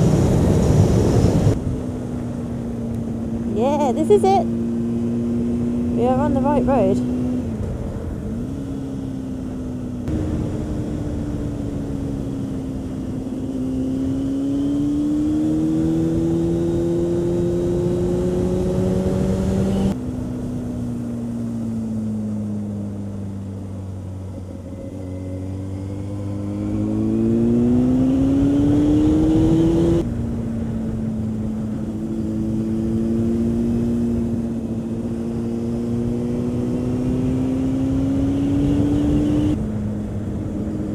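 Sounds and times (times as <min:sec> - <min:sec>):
motorcycle engine at road speed: 0:00.0 - 0:40.9.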